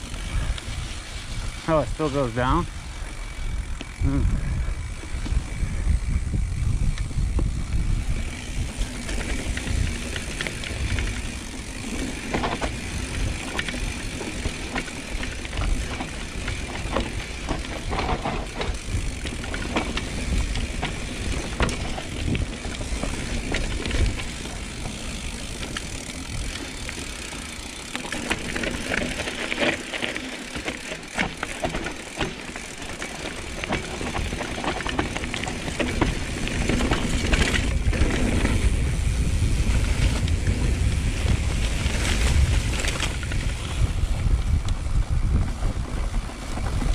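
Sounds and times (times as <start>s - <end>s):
bike clicks and rattles: 0.0s - 46.9s
bike rolling on dirt trail: 0.0s - 46.9s.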